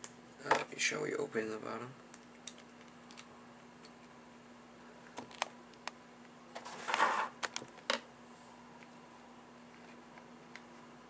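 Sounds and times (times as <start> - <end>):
short scraping rustle: 6.6 - 7.4.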